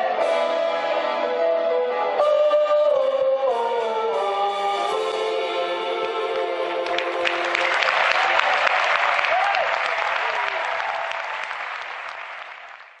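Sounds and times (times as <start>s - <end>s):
audience applauding: 5.9s - 13.0s.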